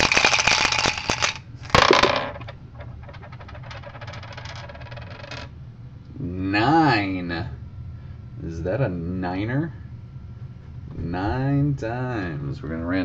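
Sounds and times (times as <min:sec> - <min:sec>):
dice clattering on wooden desk: 0:00.0 - 0:05.5
dice clicking as they settle: 0:00.0 - 0:05.5.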